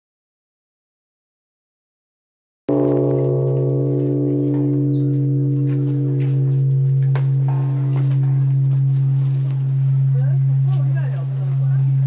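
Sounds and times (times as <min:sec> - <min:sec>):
large temple bell ringing: 0:02.7 - 0:12.0.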